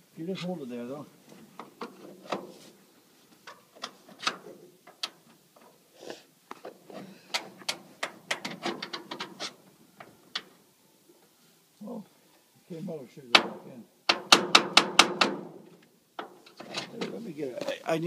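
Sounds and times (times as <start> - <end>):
sharp clicks and knocks of metal fittings: 3.4 - 5.8, 6.5 - 10.6, 13.3 - 15.4.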